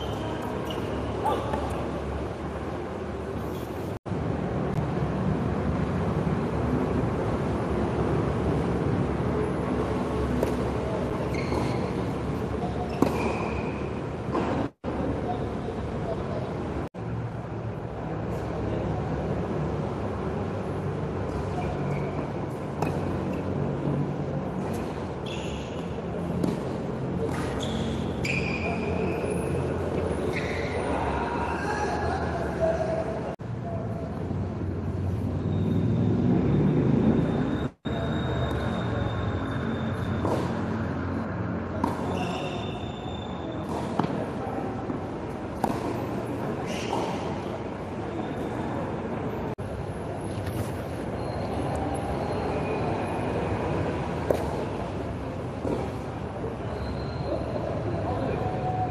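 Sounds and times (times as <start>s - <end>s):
sneakers squeaking on court: 0.0s - 2.2s, 10.2s - 14.7s, 21.3s - 23.7s, 24.4s - 31.1s, 35.1s - 49.0s, 50.1s - 57.8s
tennis ball struck by rackets: 10.3s - 10.8s, 12.9s - 14.7s, 22.8s - 23.4s, 26.3s - 27.6s, 40.2s - 40.6s, 41.8s - 42.3s, 44.9s - 47.4s, 54.2s - 54.8s
ball bouncing on hard court: 10.3s - 12.0s, 12.6s - 14.7s, 40.1s - 40.7s, 41.8s - 42.8s, 45.6s - 47.3s, 54.2s - 54.7s.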